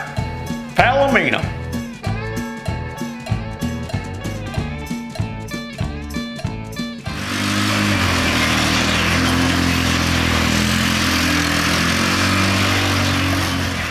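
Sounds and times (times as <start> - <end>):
music: 0.0 - 13.9
small engine running: 7.0 - 13.9.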